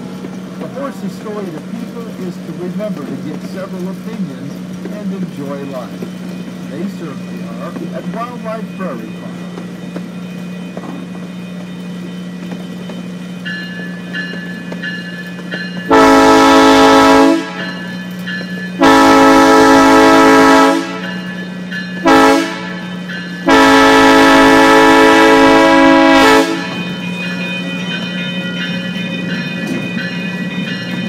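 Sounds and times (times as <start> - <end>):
train horn blasts: 15.9 - 17.8, 18.8 - 21.2, 22.0 - 26.8.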